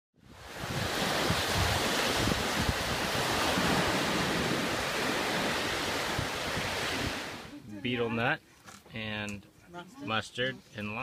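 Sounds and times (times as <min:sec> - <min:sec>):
wind gusting on microphone: 0:00.2 - 0:07.6
ocean surf on beach: 0:00.2 - 0:08.0.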